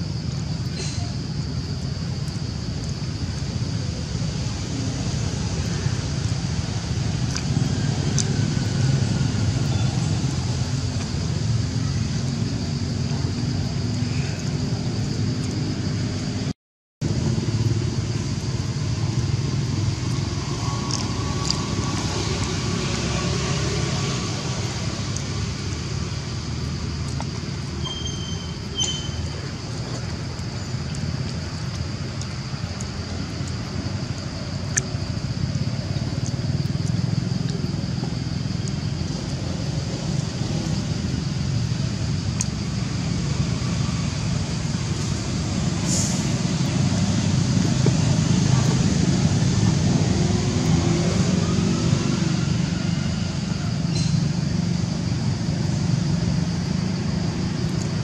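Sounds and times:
thin high hiss: 45.0 - 47.3.

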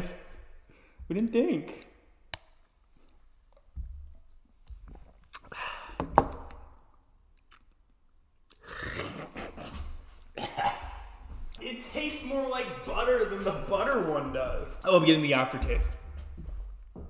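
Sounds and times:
people sipping and swallowing: 3.0 - 11.6.

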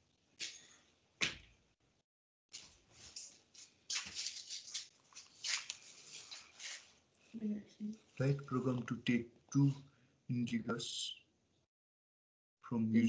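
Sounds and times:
rustling scratchy noise: 2.5 - 7.0.

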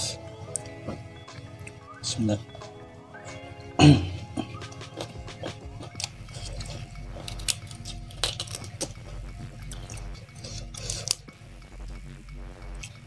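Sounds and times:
vegetable snapping and crunching: 4.5 - 11.2.

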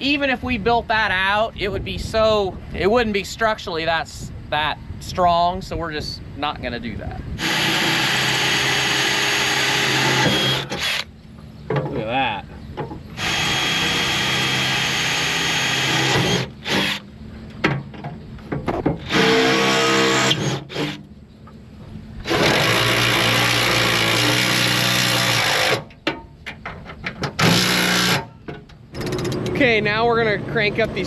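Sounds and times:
power drill running: 7.4 - 11.1, 13.2 - 17.0, 19.0 - 21.0, 22.2 - 25.8, 27.4 - 28.2.

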